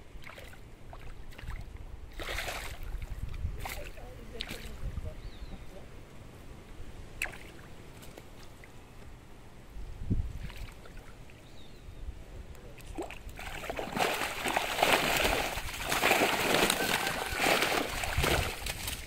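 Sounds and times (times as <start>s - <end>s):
faint water sounds: 0.0s - 19.0s
fish thrashing and splashing: 12.9s - 19.0s.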